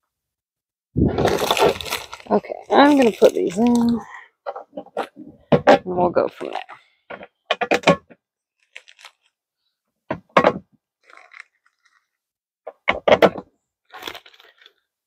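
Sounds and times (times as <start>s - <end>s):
plastic packaging crunching: 1.0s - 4.0s, 8.6s - 9.4s, 11.0s - 12.1s, 13.9s - 14.9s.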